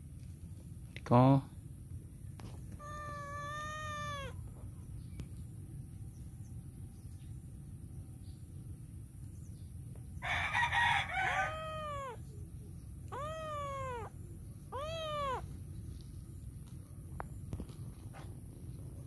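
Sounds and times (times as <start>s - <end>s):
kitten meowing: 2.7s - 4.5s, 11.5s - 12.2s, 13.0s - 15.6s.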